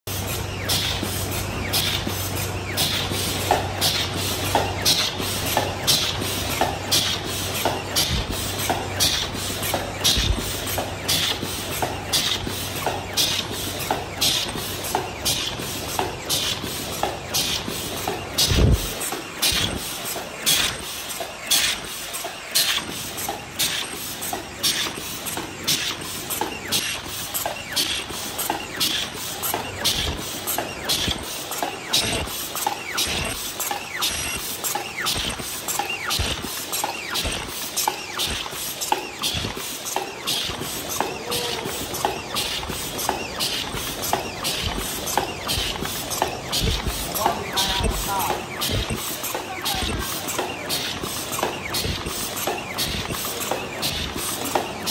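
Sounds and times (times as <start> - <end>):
sharp mechanical bursts and clicks: 0.1 - 54.9
paper cup machine clattering: 34.0 - 54.9.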